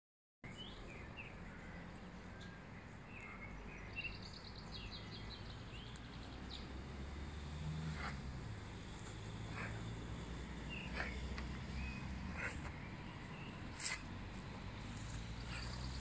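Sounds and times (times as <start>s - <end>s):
birds chirping: 0.4s - 16.0s.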